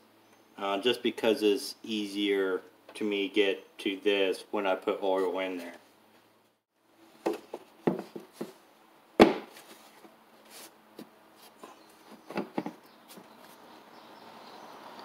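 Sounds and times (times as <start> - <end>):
plastic cover knocks and taps: 7.3 - 8.5.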